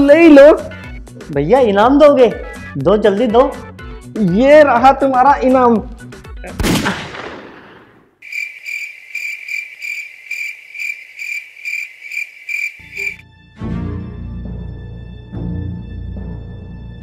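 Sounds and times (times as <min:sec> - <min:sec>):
music: 0:00.0 - 0:06.6, 0:12.8 - 0:17.0
gunshot with echoing tail: 0:06.6 - 0:08.2
cricket chirps: 0:08.2 - 0:13.2.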